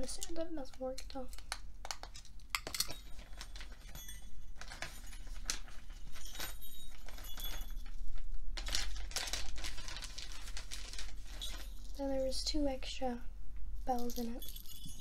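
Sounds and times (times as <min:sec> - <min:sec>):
small jingle bells jingling: 0:02.7 - 0:08.2, 0:11.2 - 0:12.6, 0:13.8 - 0:15.0
packaging bag crinkling: 0:03.1 - 0:12.0.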